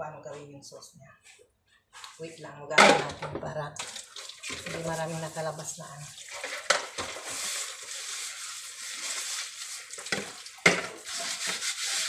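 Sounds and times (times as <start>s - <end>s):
plastic bowl being scrubbed: 3.9s - 12.0s.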